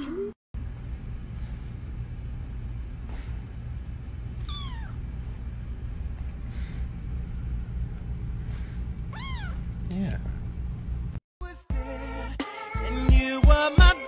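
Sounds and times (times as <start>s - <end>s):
steady low hum: 0.0s - 11.2s
kitten mewing: 4.4s - 5.0s, 9.1s - 9.6s.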